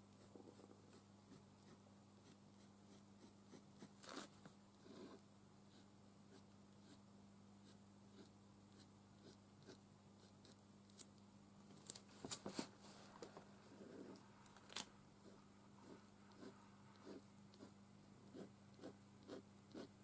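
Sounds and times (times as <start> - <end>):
low steady hum: 0.0 - 20.0
pen scratching on card: 15.8 - 19.9.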